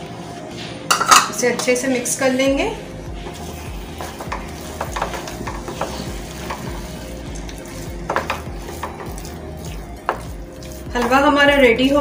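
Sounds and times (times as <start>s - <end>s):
spatula scraping and stirring in pan: 3.0s - 12.0s
spatula tapping against pan: 4.0s - 6.7s, 8.1s - 9.1s.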